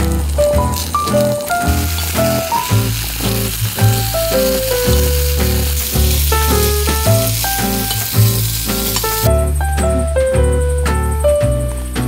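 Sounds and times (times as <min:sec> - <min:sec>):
meat sizzling on grill pan: 0:00.0 - 0:09.3
plucked melody with bass: 0:00.0 - 0:12.0.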